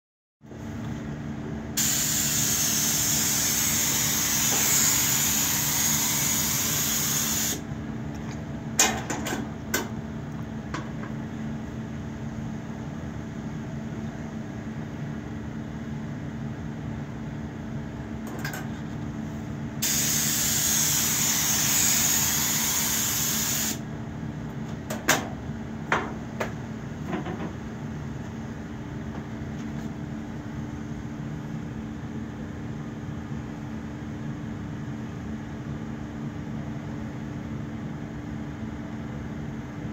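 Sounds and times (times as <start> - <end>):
spray hissing: 1.8 - 7.6, 19.8 - 23.8.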